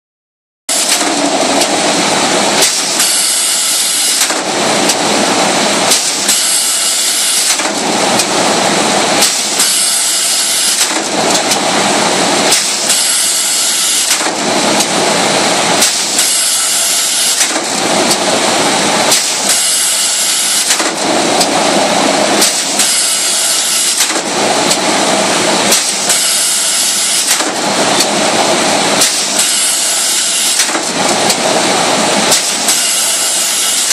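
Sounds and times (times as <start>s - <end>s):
machine clattering: 0.7s - 3.2s, 10.3s - 13.1s, 13.9s - 33.9s.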